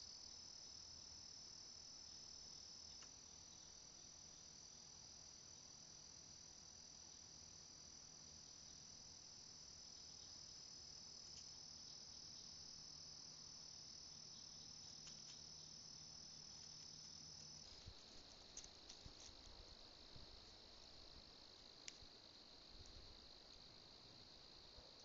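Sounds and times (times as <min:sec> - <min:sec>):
crickets trilling: 0:00.0 - 0:25.0
faint ticks: 0:02.8 - 0:03.2, 0:11.1 - 0:12.5, 0:14.4 - 0:19.6, 0:21.6 - 0:23.8.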